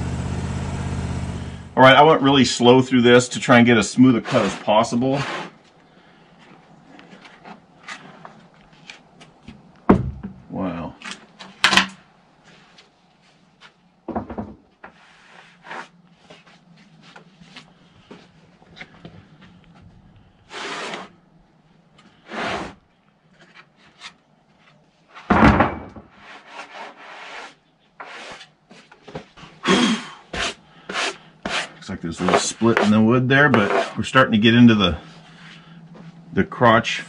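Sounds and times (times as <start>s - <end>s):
faint steady hum: 0.0s - 26.2s, 28.7s - 37.0s
wood rubbing and scraping: 3.9s - 5.8s, 6.4s - 9.7s, 12.4s - 21.2s, 26.1s - 29.7s, 30.3s - 36.2s
wooden knocks: 14.1s - 14.6s.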